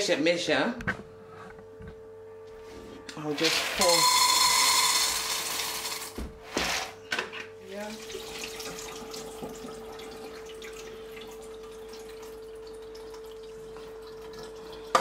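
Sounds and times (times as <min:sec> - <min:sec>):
faint steady hum: 0:00.0 - 0:15.0
water running into a bowl: 0:03.3 - 0:06.1, 0:07.7 - 0:15.0.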